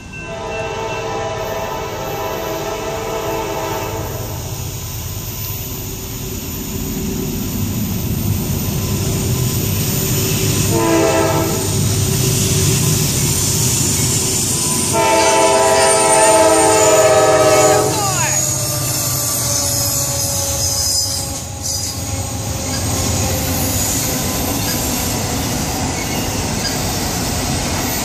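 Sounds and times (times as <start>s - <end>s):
train rumbling: 0.0s - 28.0s
locomotive horn blasts: 0.3s - 4.5s, 10.6s - 11.8s, 14.9s - 18.6s.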